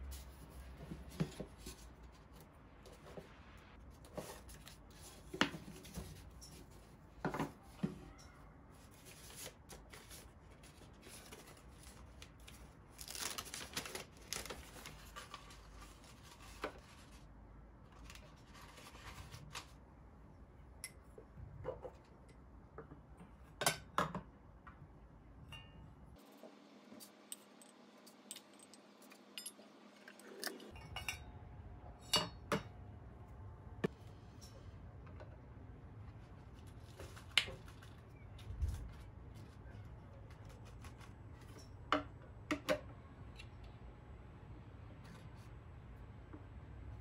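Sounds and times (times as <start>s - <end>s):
rustling and scraping: 0.0s - 17.3s, 17.9s - 19.8s.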